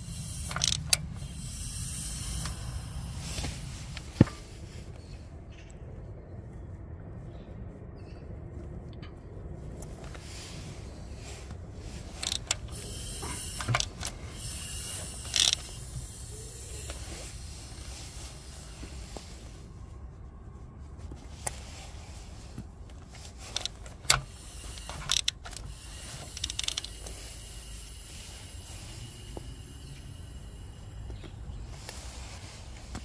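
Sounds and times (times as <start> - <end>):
hand tools clicking and knocking: 0.4 - 1.2, 12.1 - 14.5.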